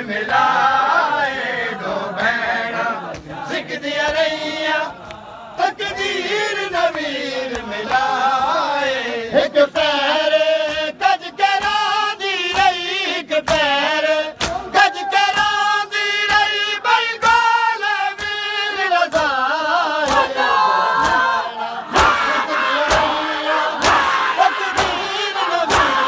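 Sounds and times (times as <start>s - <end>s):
men singing a mourning chant: 0.0s - 26.0s
hands slapping on bare chests: 3.0s - 5.2s, 6.9s - 8.6s, 10.6s - 17.5s, 18.1s - 19.4s, 20.0s - 20.4s, 21.0s - 26.0s.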